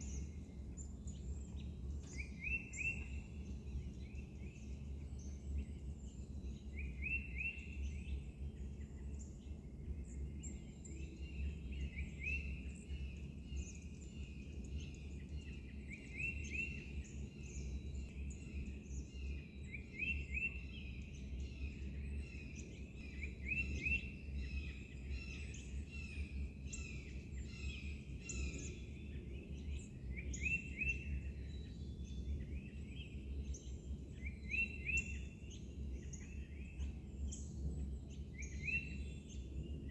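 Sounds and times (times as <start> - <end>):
songbirds chirping and singing: 0.0 - 39.9.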